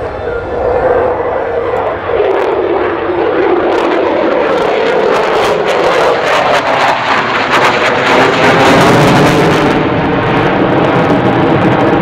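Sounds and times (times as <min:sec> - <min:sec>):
jet engines roaring with crackle: 0:00.0 - 0:12.0.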